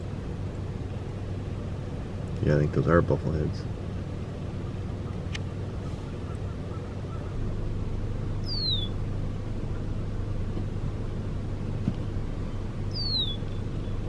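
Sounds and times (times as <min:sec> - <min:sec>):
steady low hum: 0:00.0 - 0:14.0
bird whistle: 0:08.4 - 0:09.0, 0:12.9 - 0:14.0.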